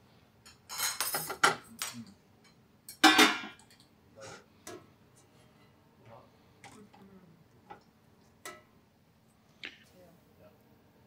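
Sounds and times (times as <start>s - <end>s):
cutlery clicking on plates: 0.4s - 3.9s, 8.4s - 8.7s.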